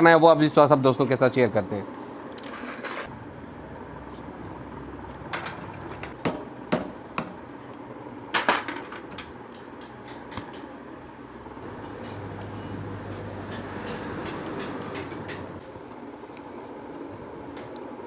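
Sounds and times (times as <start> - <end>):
metal tools clinking on engine: 5.3 - 6.2, 11.6 - 15.6.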